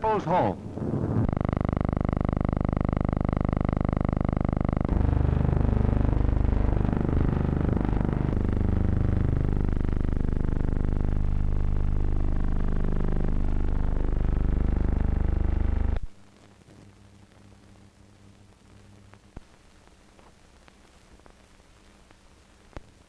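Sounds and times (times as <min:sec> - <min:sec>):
faint film hiss: 0:16.1 - 0:23.0.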